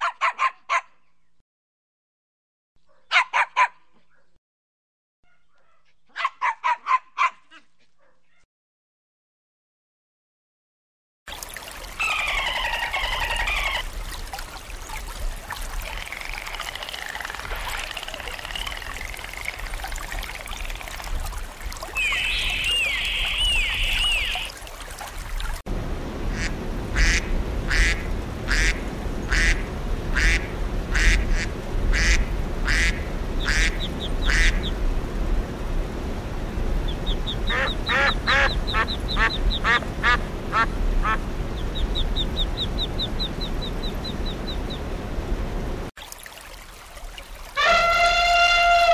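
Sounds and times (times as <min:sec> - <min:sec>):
dolphin chirps and whistles: 0:15.9 - 0:19.6, 0:22.0 - 0:24.5
ducks quacking: 0:26.3 - 0:34.7, 0:37.1 - 0:44.4.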